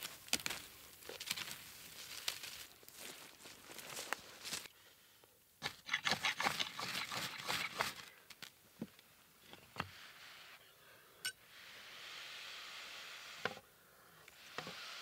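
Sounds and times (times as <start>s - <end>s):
clicks and scrapes among stones: 5.6s - 8.5s.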